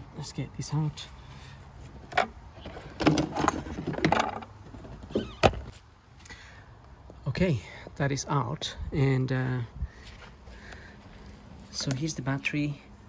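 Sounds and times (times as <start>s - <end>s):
battery case knocking and scraping: 1.9s - 5.7s.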